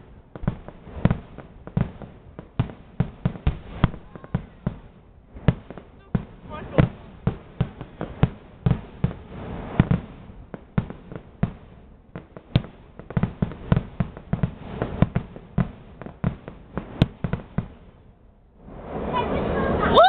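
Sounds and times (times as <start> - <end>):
fireworks bursting: 0.0 - 20.0.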